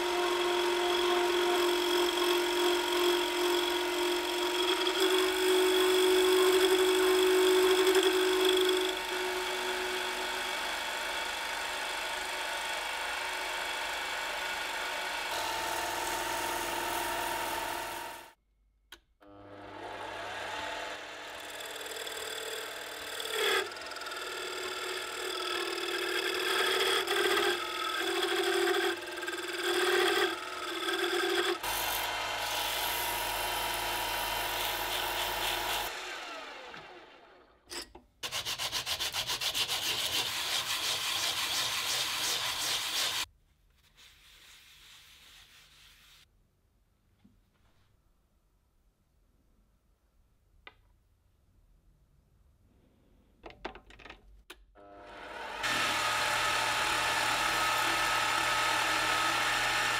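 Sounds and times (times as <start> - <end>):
lathe tool cutting wood: 0.0 - 18.4, 19.4 - 37.5, 38.2 - 43.3, 54.8 - 59.9
sandpaper on spinning wood: 38.2 - 43.3, 43.9 - 46.3.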